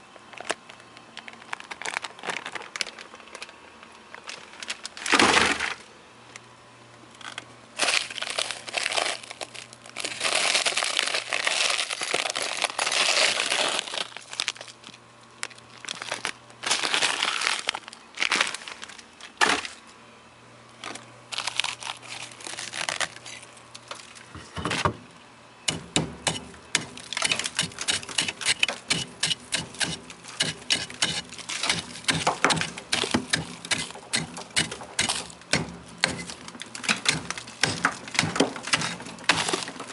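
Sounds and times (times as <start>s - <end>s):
plastic bags crunching: 0.3s - 5.9s, 7.2s - 19.9s, 20.8s - 24.4s, 25.7s - 39.9s
chisel chipping ice: 25.7s - 39.9s.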